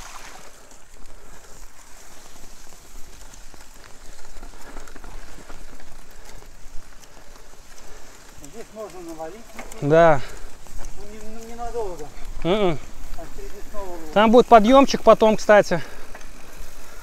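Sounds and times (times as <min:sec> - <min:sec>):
bike tyres and feet in mud: 0:00.0 - 0:17.0.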